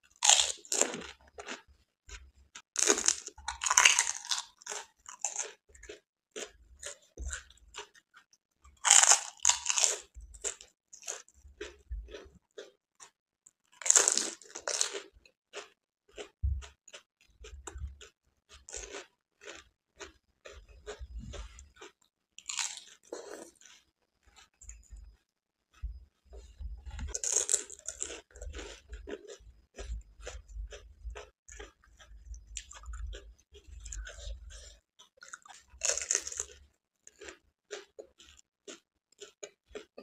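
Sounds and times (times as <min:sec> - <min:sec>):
crisp shells crunching in mouth: 0:00.2 - 0:01.6, 0:02.8 - 0:07.9, 0:08.8 - 0:12.7, 0:13.7 - 0:20.2, 0:20.8 - 0:23.8, 0:27.0 - 0:29.4, 0:33.8 - 0:40.0
chewing clicks: 0:01.0 - 0:40.0.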